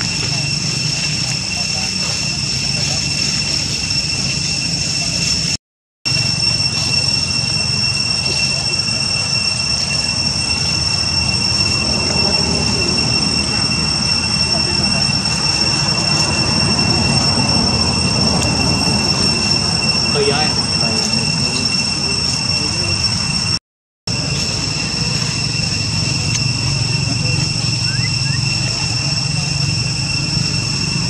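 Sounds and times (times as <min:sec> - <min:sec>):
cicadas droning: 0:00.0 - 0:31.0
low rumbling noise: 0:00.0 - 0:31.0.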